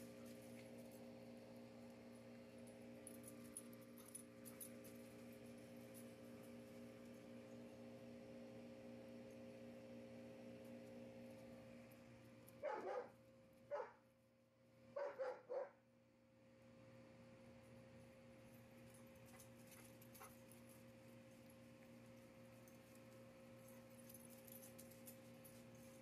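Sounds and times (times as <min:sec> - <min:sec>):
steady low hum: 0:00.0 - 0:26.0
dog barking: 0:12.6 - 0:14.0, 0:15.0 - 0:15.8.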